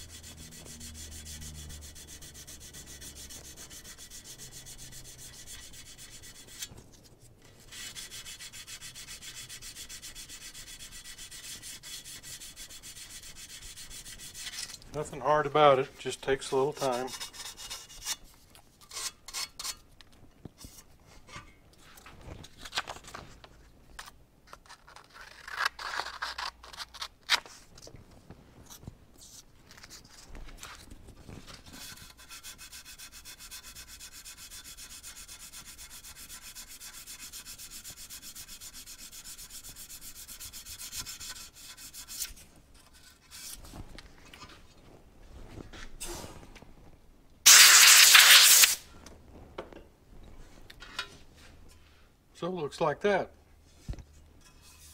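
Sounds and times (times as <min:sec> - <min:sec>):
sandpaper scraping metal: 0:00.0 - 0:06.7, 0:07.5 - 0:18.3, 0:31.7 - 0:43.6, 0:47.5 - 0:48.8, 0:54.4 - 0:54.9.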